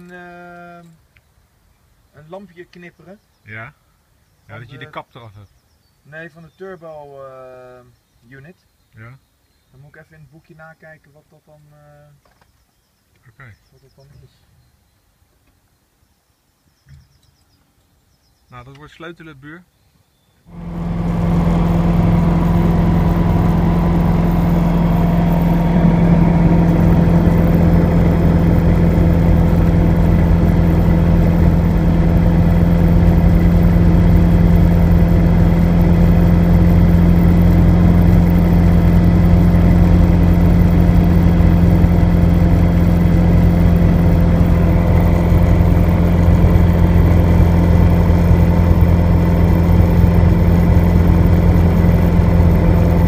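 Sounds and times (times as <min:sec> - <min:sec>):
aircraft engine and propeller running: 0:20.5 - 0:53.0.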